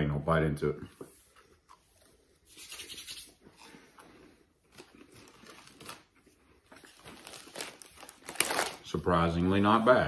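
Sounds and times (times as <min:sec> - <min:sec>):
chewing crunchy cookies: 0:03.4 - 0:08.3.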